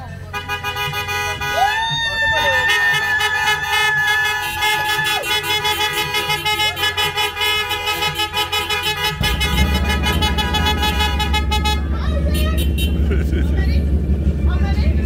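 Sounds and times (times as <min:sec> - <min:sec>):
car horns honking: 0:00.0 - 0:14.4
low rumble: 0:09.2 - 0:15.0.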